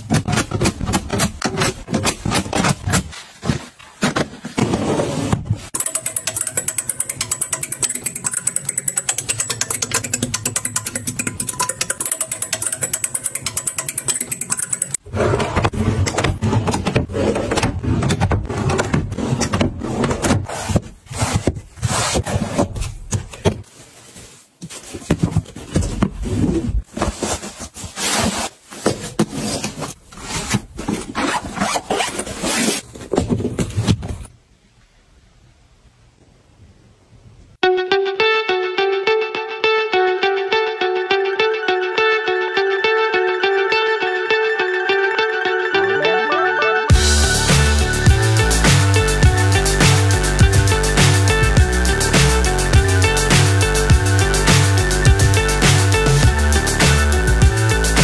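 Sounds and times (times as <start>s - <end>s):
fast even clicking: 5.8s - 15.0s.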